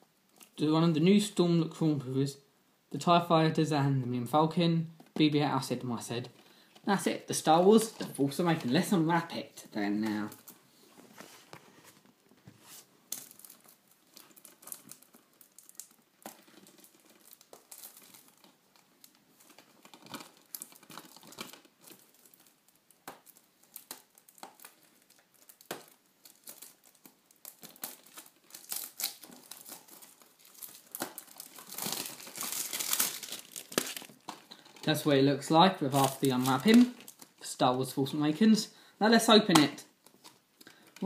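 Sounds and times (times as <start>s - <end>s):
plastic film crinkling: 6.0s - 38.2s
plastic film tearing: 13.1s - 35.1s, 35.8s - 37.5s.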